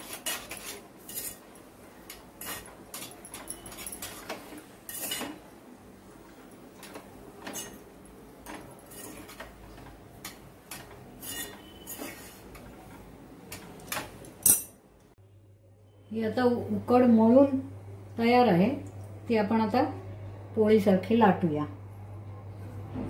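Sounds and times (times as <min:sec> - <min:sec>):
spatula scraping metal pot: 0:00.0 - 0:05.4, 0:08.4 - 0:12.7.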